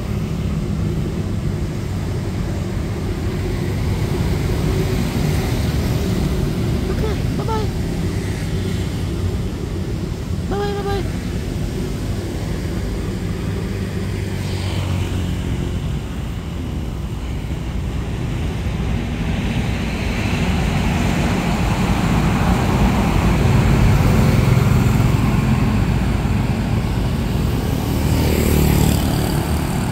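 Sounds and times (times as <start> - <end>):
motorbikes passing: 0.0 - 29.9
road traffic: 0.0 - 29.9.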